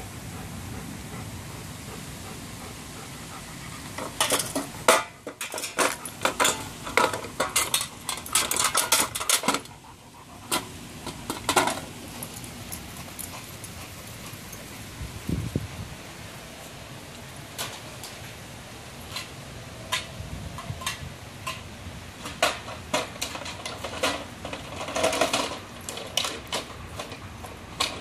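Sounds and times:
plastic toy truck clattering: 0:04.2 - 0:09.8, 0:10.5 - 0:11.9, 0:22.2 - 0:28.0.

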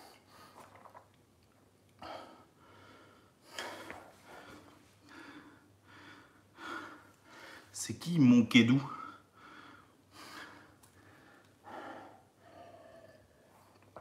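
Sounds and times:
man breathing hard: 0:02.0 - 0:07.7, 0:08.9 - 0:13.8.

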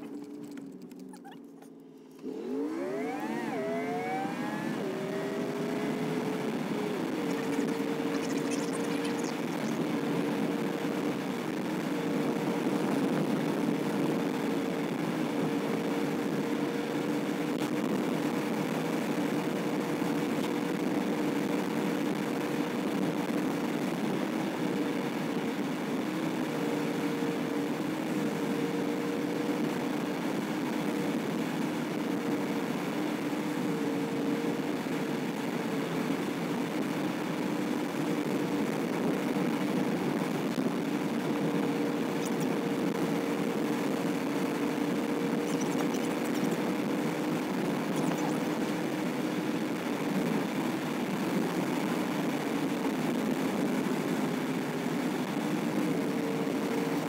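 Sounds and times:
tyre and road noise: 0:00.0 - 0:13.5
car engine accelerating: 0:00.0 - 0:22.2, 0:36.6 - 0:49.6.

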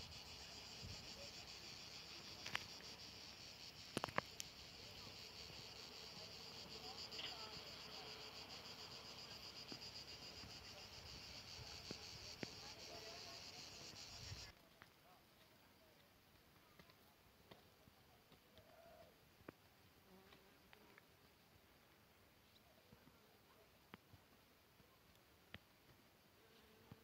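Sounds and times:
insects chirring: 0:00.0 - 0:14.5.

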